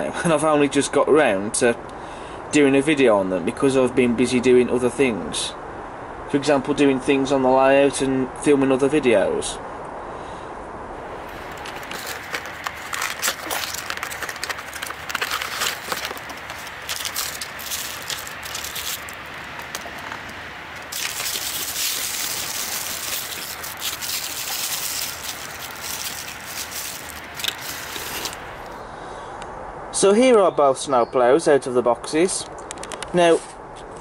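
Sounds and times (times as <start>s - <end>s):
tissue paper crinkling: 11.1s - 28.7s.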